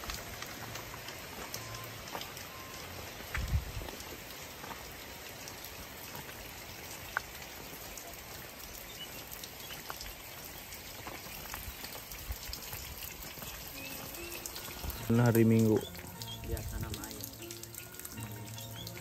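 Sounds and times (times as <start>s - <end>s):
rain on stone paving: 0.0s - 19.0s
water drops ticking: 0.0s - 19.0s.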